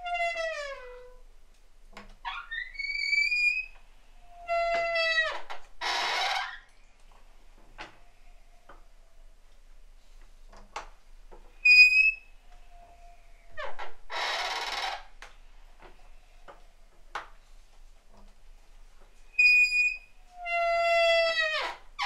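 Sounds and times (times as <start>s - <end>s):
wooden door hinges creaking: 4.5s - 6.7s, 13.6s - 16.0s, 19.4s - 22.0s.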